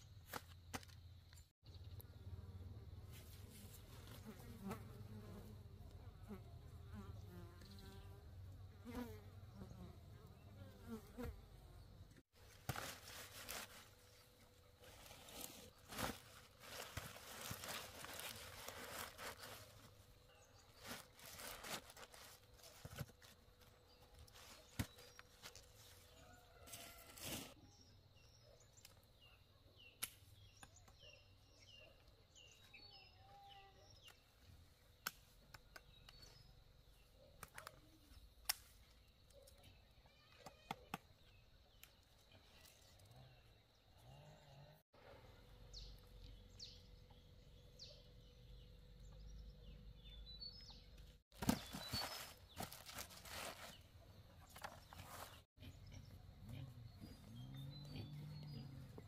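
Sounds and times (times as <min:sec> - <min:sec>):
vegetables picked and handled: 0:12.4 - 0:27.6, 0:51.3 - 0:55.5
small bird chirping: 0:53.6 - 0:59.0.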